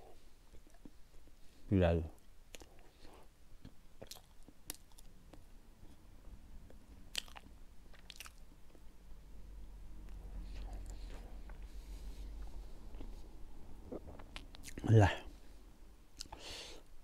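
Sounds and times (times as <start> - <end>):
person chewing food: 2.5 - 6.0, 6.6 - 8.9, 10.1 - 13.2, 13.8 - 14.8, 16.2 - 16.5.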